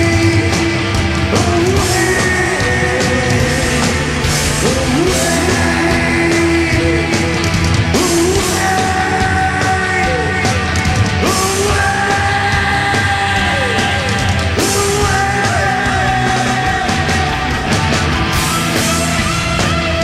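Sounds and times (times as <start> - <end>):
rock band playing: 0.0 - 20.0.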